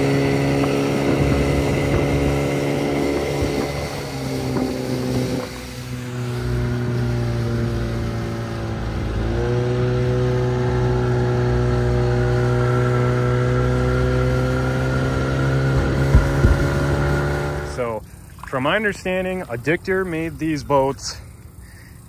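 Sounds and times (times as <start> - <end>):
outboard motor running: 0.0 - 22.0
low thumps: 15.2 - 17.8.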